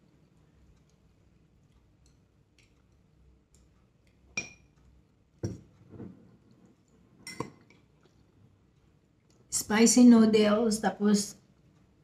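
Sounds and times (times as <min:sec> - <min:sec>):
utensils clinking on ceramic bowls: 0:07.2 - 0:07.7.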